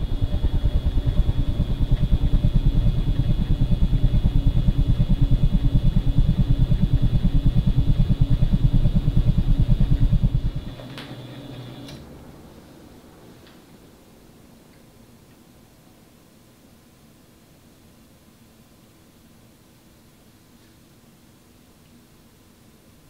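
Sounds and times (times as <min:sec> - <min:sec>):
fan blades pulsing air buffet: 0:00.0 - 0:15.3
fan motor buzzing hum: 0:00.0 - 0:23.0.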